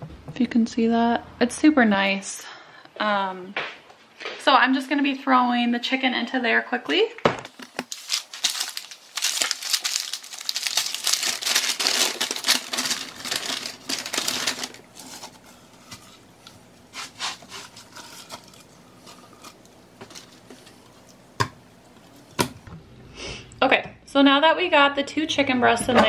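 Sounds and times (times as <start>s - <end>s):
paper and plastic wrapping crinkling: 7.5s - 22.6s.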